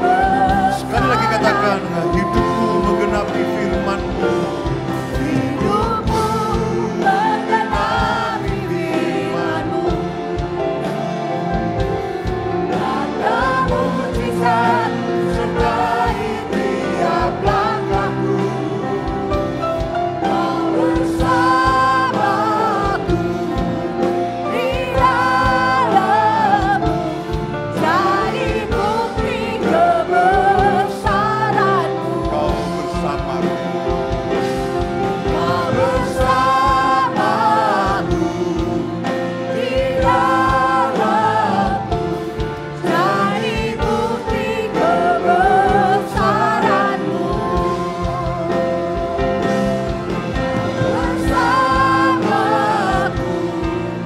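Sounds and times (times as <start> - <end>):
group of singers singing: 0.0 - 54.0
keyboard and band playing: 0.0 - 54.0.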